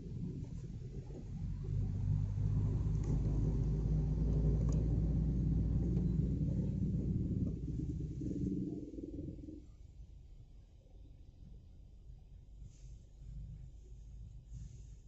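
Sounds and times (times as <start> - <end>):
traffic jam engine rumble: 0.0 - 9.6.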